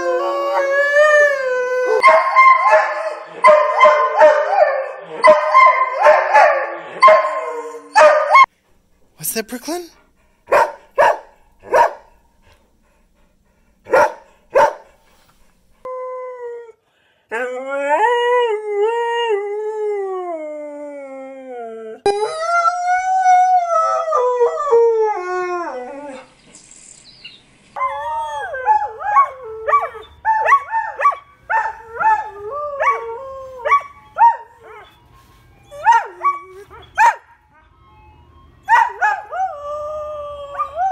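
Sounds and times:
dogs howling: 0.0 - 8.5, 27.8 - 34.9, 35.7 - 37.3, 38.7 - 40.9
ice cream truck jingle: 34.0 - 39.3
dog yipping: 35.8 - 37.4, 38.7 - 39.2.

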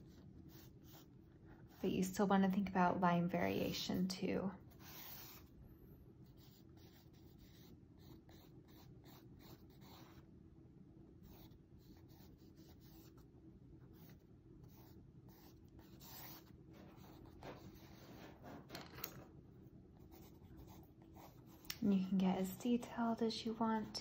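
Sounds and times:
pencil scratching on paper: 0.0 - 2.0, 4.7 - 5.5, 6.2 - 10.2, 11.2 - 13.2, 13.9 - 18.8, 20.0 - 23.1.

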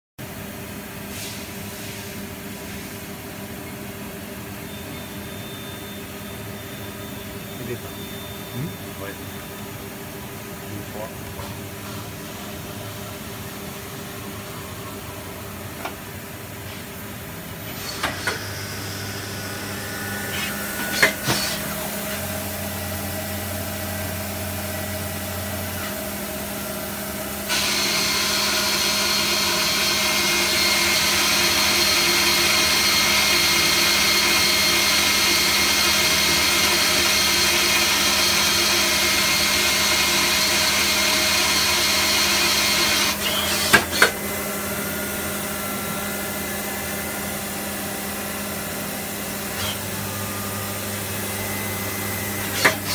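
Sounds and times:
lathe hum: 12.1 - 52.9.

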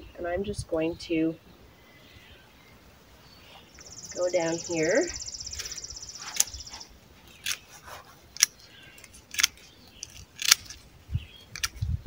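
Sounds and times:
high insect trill: 3.7 - 7.0
pruning clippers snipping stems: 5.6 - 10.8.

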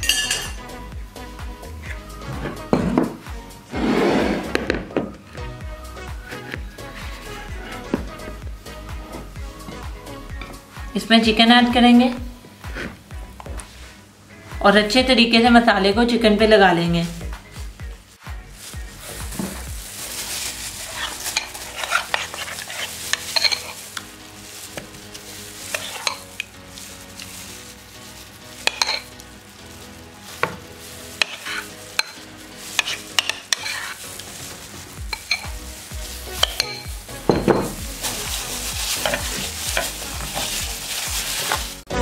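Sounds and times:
hands rubbing paste into chicken: 18.2 - 42.0
spoon scraping bowl: 20.5 - 27.6, 28.5 - 29.2, 30.4 - 35.7, 36.3 - 41.7.

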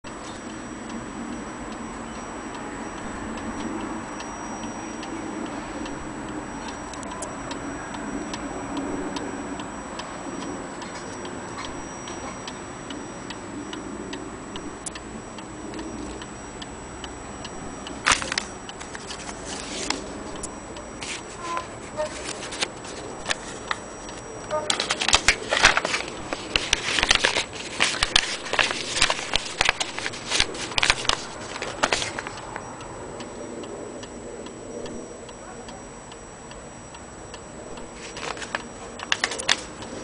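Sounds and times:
wall clock ticking: 0.0 - 40.0.

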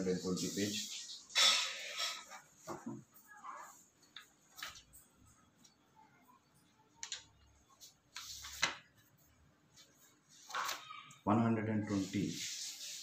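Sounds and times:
paper pages rustling: 4.0 - 4.9, 7.8 - 9.2, 9.8 - 11.1.

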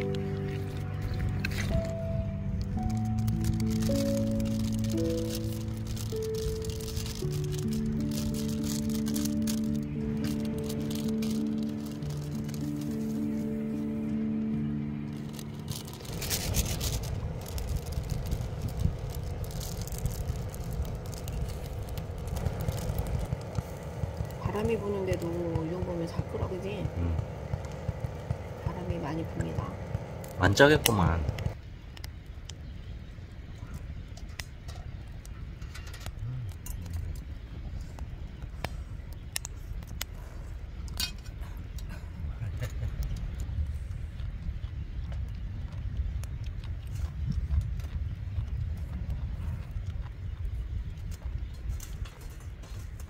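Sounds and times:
wind buffeting microphone: 15.2 - 53.0.

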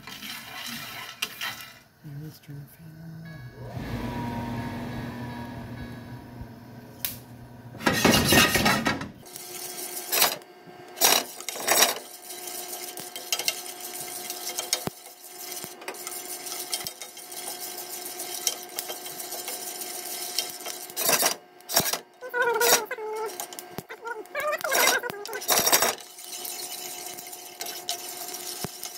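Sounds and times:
wooden spoon scraping beans in pan: 0.0 - 1.9, 7.8 - 28.9
fan hum: 0.0 - 28.9
coffee beans popping: 10.9 - 21.9.

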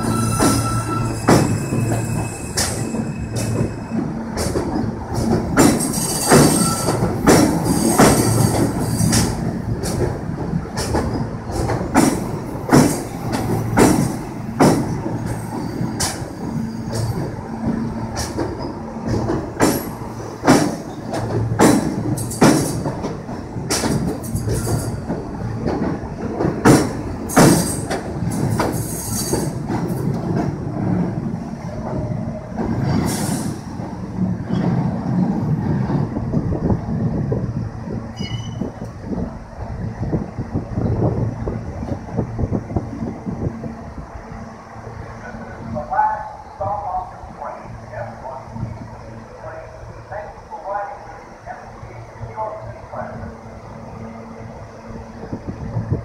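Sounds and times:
high wheel squeal: 0.0 - 4.1, 5.8 - 9.2, 38.2 - 38.8
train rumble and hum: 0.0 - 56.0
train wheels knocking over rail joints: 0.3 - 2.0, 4.4 - 30.6.

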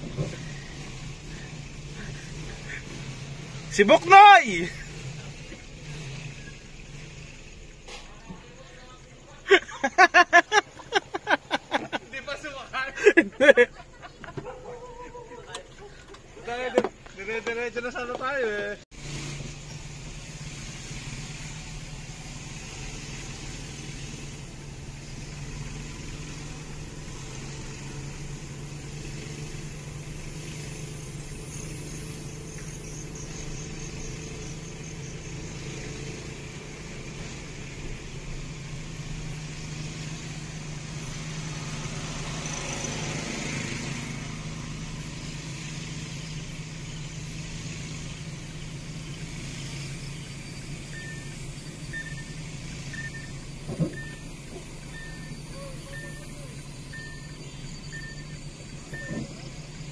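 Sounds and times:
small motorcycle engine running: 0.0 - 3.8
tyre and road noise: 0.0 - 59.9.

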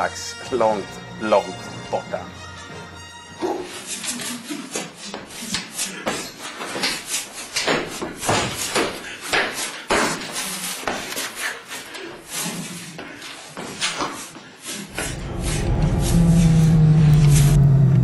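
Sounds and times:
feet stomping on bare floor: 7.6 - 11.1.

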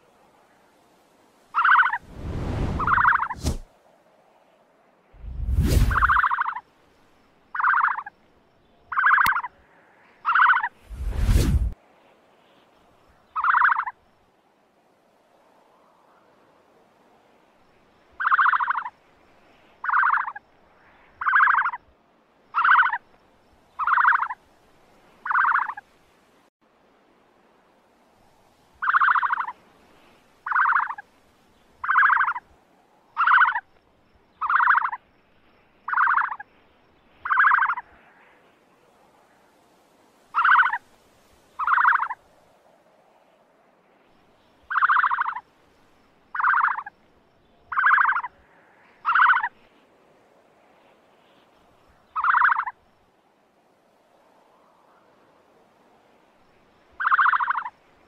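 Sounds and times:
ostrich calling: 1.5 - 2.0, 2.7 - 3.6, 7.5 - 8.1, 8.9 - 9.5, 10.2 - 11.7, 13.4 - 13.9, 19.8 - 20.4, 22.6 - 23.0, 23.8 - 24.4, 25.2 - 25.8, 28.8 - 29.6, 30.4 - 31.0, 31.8 - 32.4, 33.2 - 33.7, 34.4 - 35.0, 35.9 - 36.4, 37.2 - 37.8, 40.3 - 40.8, 41.6 - 42.2, 44.7 - 45.4, 46.3 - 46.9, 47.7 - 48.4, 49.0 - 49.5, 52.2 - 52.7, 57.0 - 57.7.

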